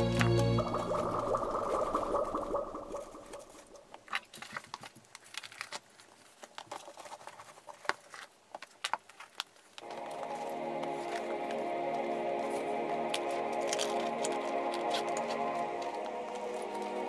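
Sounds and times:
background music: 0:00.0 - 0:03.0, 0:09.8 - 0:17.0
items rustling and clicking: 0:03.9 - 0:11.6.

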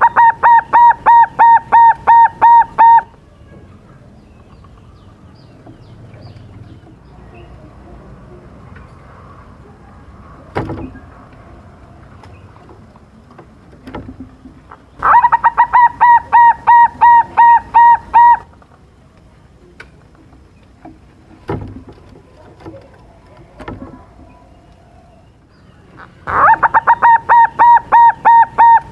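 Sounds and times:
dove cooing: 0:00.0 - 0:03.1, 0:15.0 - 0:18.5, 0:26.0 - 0:28.9.

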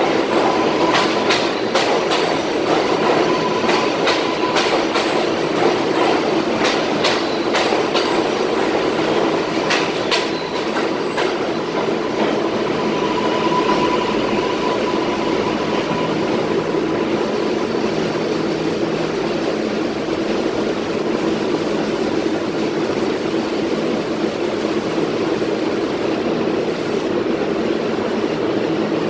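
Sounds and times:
subway train wheels rumbling: 0:00.0 - 0:29.0
thin train whine: 0:00.0 - 0:29.0.

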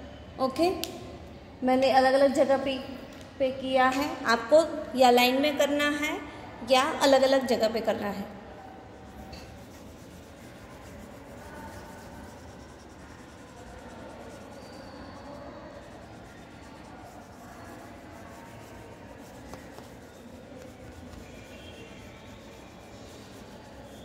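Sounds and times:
crayon rubbing on paper: 0:09.0 - 0:24.0.

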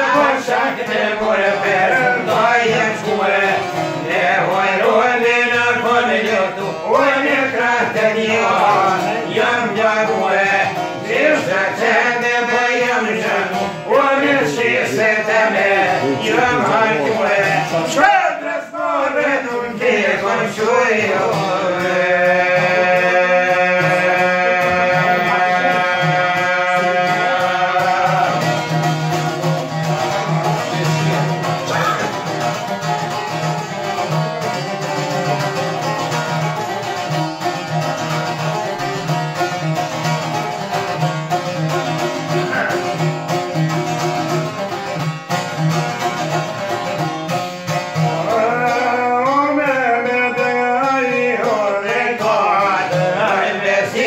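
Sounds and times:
men singing high-pitched: 0:00.0 - 0:29.2, 0:42.0 - 0:43.2, 0:48.0 - 0:54.0
plucked lute: 0:00.0 - 0:54.0.

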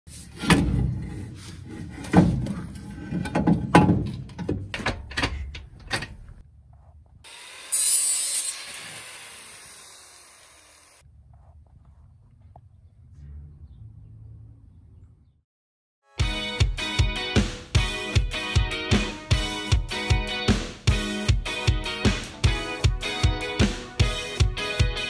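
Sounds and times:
knocks and clunks of car parts: 0:02.0 - 0:06.4.

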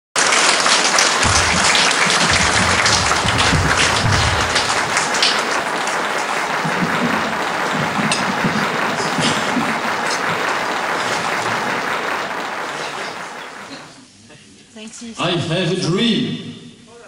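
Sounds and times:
audience applauding: 0:00.2 - 0:14.0
low thumps: 0:01.2 - 0:05.6.

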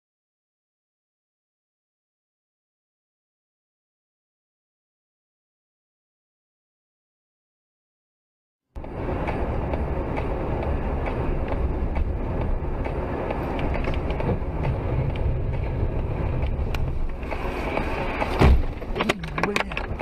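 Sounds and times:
vehicle road rumble: 0:08.8 - 0:20.0.

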